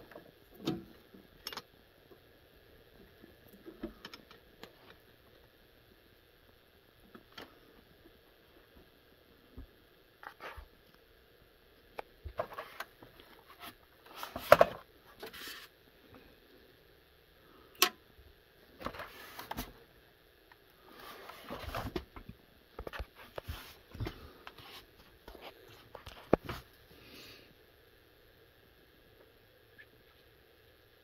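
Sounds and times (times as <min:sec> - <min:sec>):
plastic keyboard handling noise: 0:12.3 - 0:15.6.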